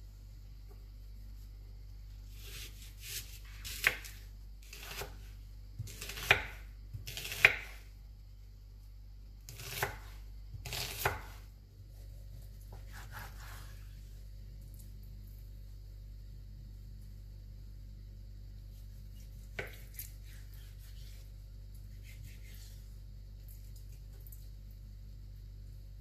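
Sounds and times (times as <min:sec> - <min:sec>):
knife cutting onion on board: 0:02.3 - 0:07.9, 0:09.5 - 0:13.7, 0:18.7 - 0:21.3, 0:21.9 - 0:22.7.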